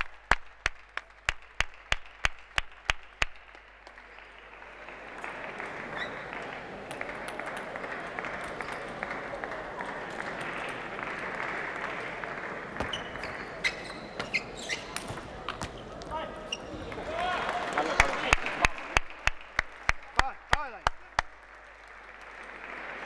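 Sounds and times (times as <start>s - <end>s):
crowd applauding: 0.0s - 13.6s, 15.3s - 23.0s.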